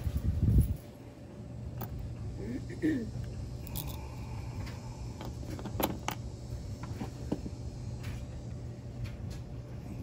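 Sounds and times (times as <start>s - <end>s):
low hum: 0.0s - 10.0s
small metal parts clicking: 3.6s - 4.0s.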